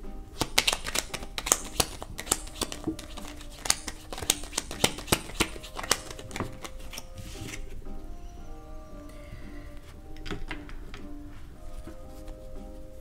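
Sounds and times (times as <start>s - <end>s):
cards being shuffled: 0.3s - 7.8s, 10.1s - 13.0s.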